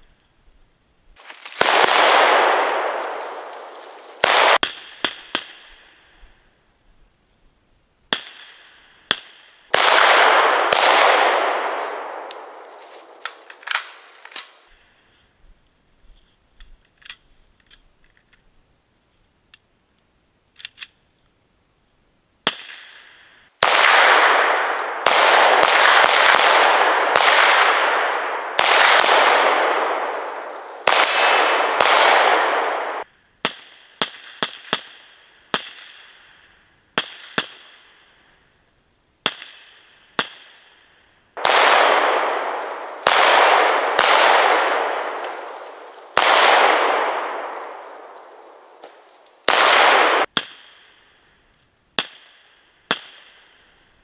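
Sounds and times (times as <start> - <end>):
rifle shots echoing: 1.4 - 5.6, 8.1 - 14.7, 23.6 - 35.0, 41.4 - 50.6
brief metallic ring: 31.0 - 31.7.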